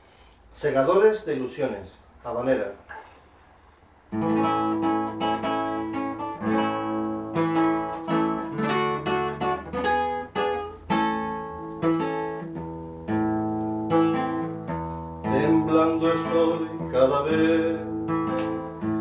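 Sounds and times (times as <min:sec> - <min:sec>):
classical guitar playing: 0:04.1 - 0:19.0.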